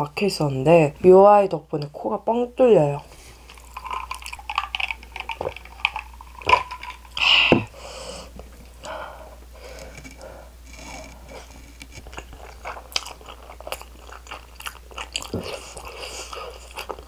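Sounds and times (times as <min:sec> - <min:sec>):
close-up chewing of noodles: 0:03.2 - 0:07.6, 0:09.7 - 0:17.0.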